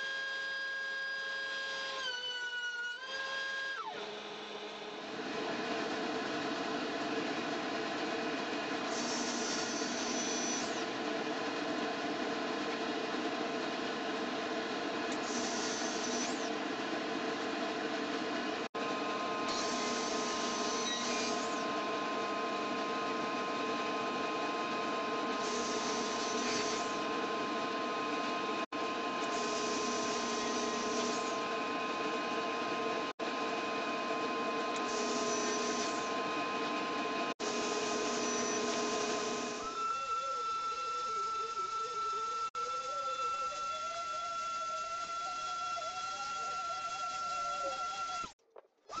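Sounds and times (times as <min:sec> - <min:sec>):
table saw motor humming: 0:01.4 - 0:49.0
saw blade cutting wood: 0:08.9 - 0:10.9, 0:15.2 - 0:16.5, 0:19.5 - 0:21.7, 0:25.4 - 0:27.0, 0:34.8 - 0:36.1, 0:37.5 - 0:39.7.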